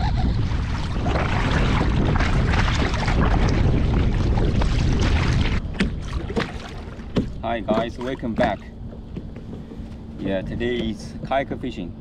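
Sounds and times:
low rumble: 0.0 - 8.0
water splashing around kayak: 0.0 - 9.0
wind buffeting microphone: 0.0 - 11.3.

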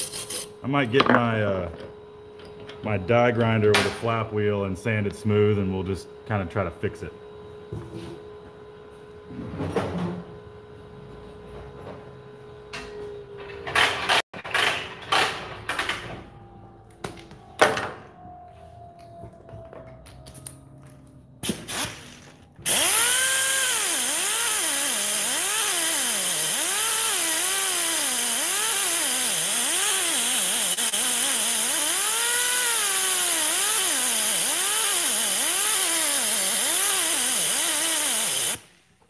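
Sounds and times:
die grinder whining on metal: 21.9 - 38.7.

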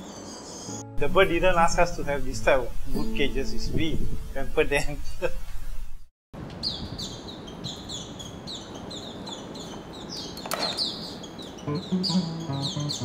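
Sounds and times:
songbird chirping: 6.6 - 13.0.

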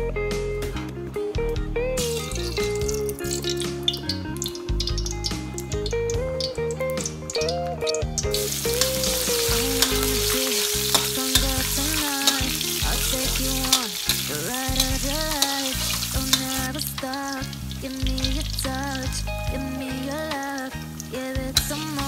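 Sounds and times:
garlic sizzling in hot oil: 2.0 - 22.0
metal spatula scraping wok: 8.4 - 18.6.

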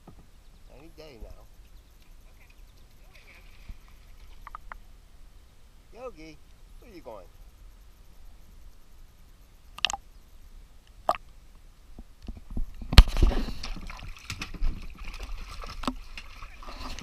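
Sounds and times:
water splashing against hull: 12.9 - 17.0.

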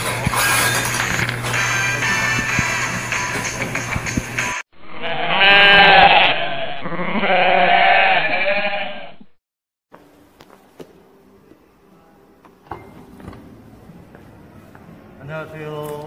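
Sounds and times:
music: 0.0 - 4.6, 10.0 - 16.0
long wavering bleats: 4.8 - 9.2.

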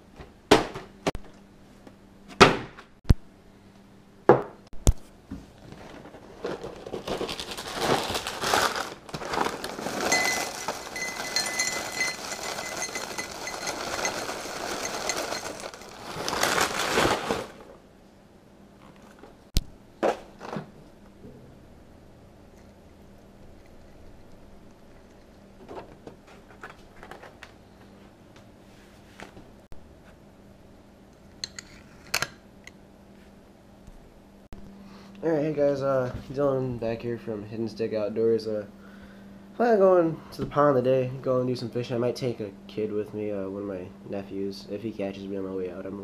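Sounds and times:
cereal pouring into a glass: 9.4 - 17.4
cereal clinking against glass: 9.8 - 16.8.

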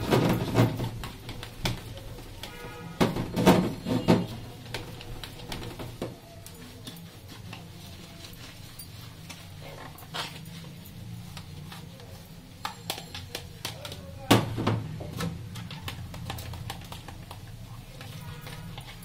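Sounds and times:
sponge scrubbing dishes: 0.0 - 14.2, 15.4 - 19.0.

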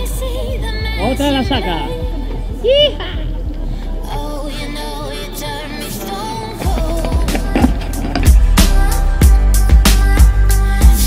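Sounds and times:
music with strong bass and beat: 0.0 - 11.0.

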